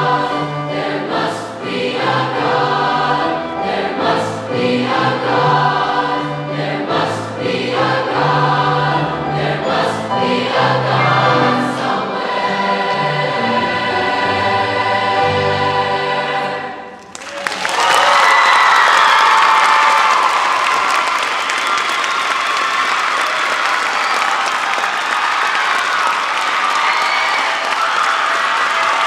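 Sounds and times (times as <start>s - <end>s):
choir singing in harmony: 0.0s - 17.0s
applause: 17.0s - 29.0s.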